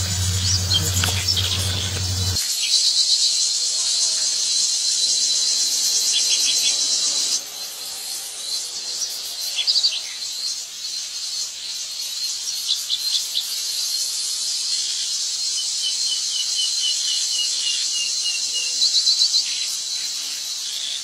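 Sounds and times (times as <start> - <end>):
short insect chirps: 0.0 - 2.4
insect chorus drone: 0.0 - 21.0.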